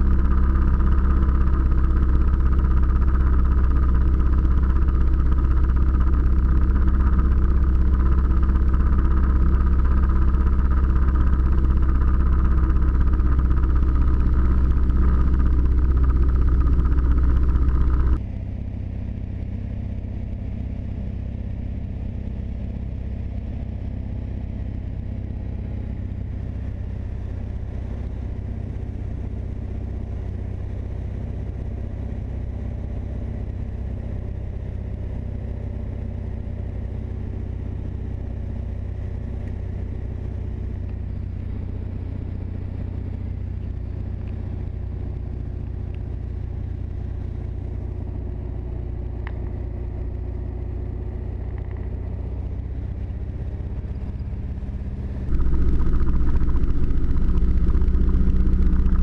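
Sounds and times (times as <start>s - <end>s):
airplane piston engine and propeller: 0.0s - 18.2s, 24.2s - 59.0s.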